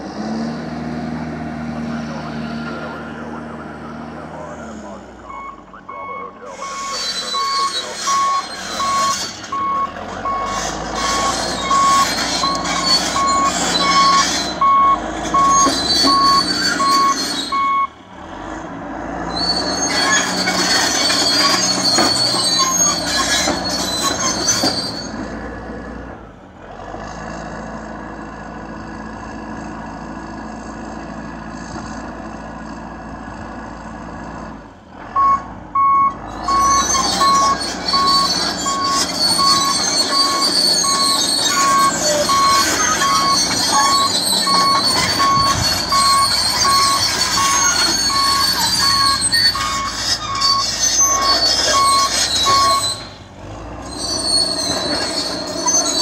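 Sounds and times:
diesel engine running: 0.0s - 56.0s
steel tracks clanking and squealing: 5.2s - 26.0s, 35.0s - 56.0s
backup alarm beeping: 35.2s - 52.8s.

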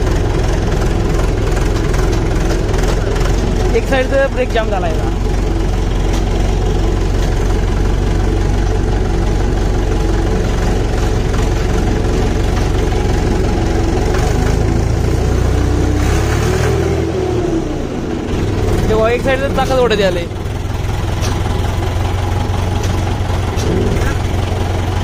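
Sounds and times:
tractor diesel engine idling: 0.0s - 25.0s.

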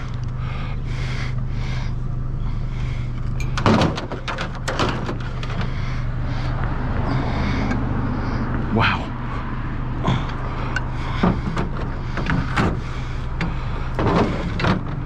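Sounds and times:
low hum: 0.0s - 15.0s
metal scraping and rustling: 10.8s - 15.0s.

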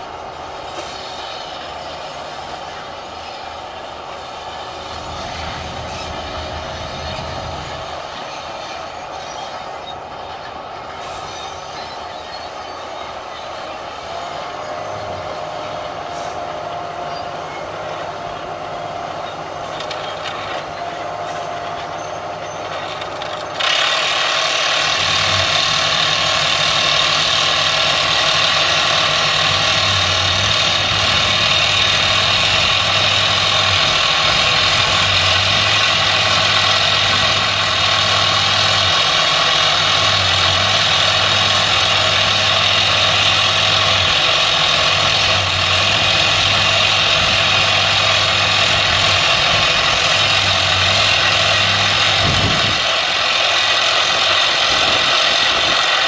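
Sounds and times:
rock drill rig hissing rattle: 22.7s - 56.0s.

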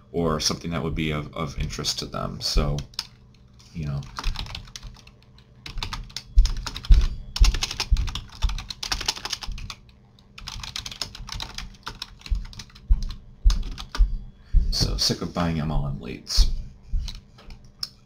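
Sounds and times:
computer keyboard typing: 3.9s - 14.0s.

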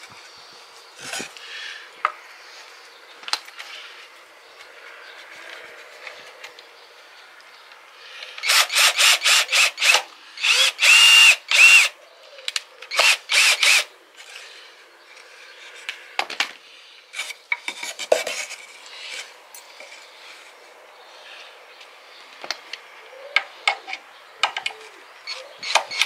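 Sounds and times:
faint clicks and scrapes: 14.2s - 20.6s.

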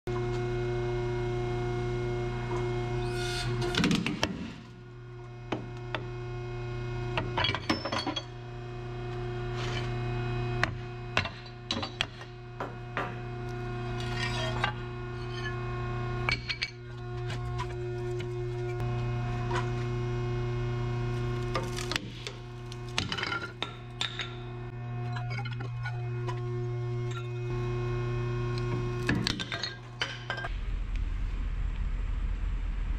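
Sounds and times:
hydraulic press pump humming: 0.1s - 30.5s
broken metal pieces clinking: 7.4s - 8.3s, 29.1s - 30.5s.

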